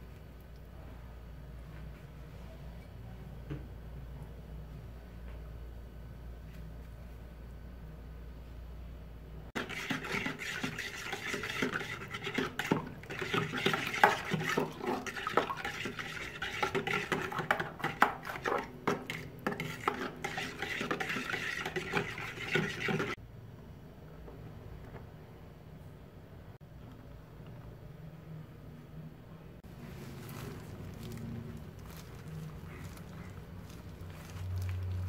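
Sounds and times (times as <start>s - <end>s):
utensil scraping ceramic bowl: 9.6s - 23.2s.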